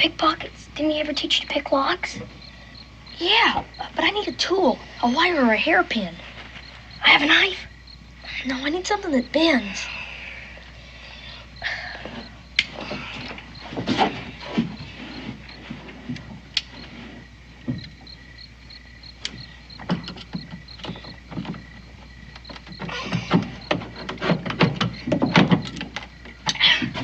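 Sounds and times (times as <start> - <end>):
wooden knocks creaks and scrapes: 12.1 - 18.3, 19.3 - 27.0.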